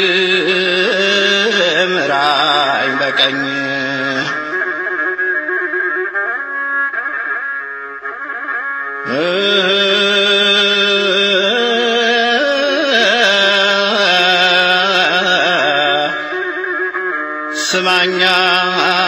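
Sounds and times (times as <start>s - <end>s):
man singing melisma: 0.0s - 4.7s, 9.0s - 16.5s, 17.5s - 19.0s
instrumental backing: 0.0s - 19.0s.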